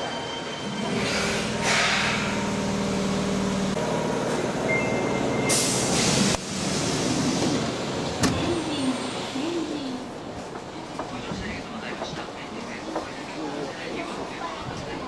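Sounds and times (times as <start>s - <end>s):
subway train hum: 0.0s - 15.0s
train carriage running noise: 0.0s - 15.0s.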